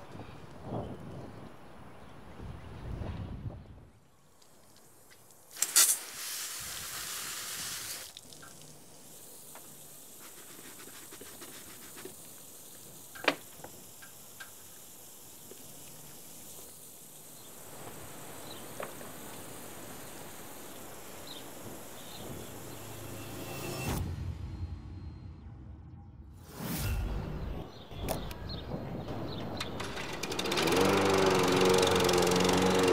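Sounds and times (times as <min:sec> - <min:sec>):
water spraying from garden hose: 0:04.3 - 0:23.3, 0:30.3 - 0:32.9.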